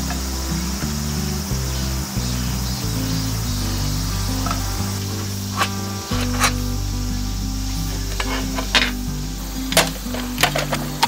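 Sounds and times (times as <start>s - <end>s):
background music melody: 0.0s - 11.0s
rustling clicks: 9.7s - 11.0s.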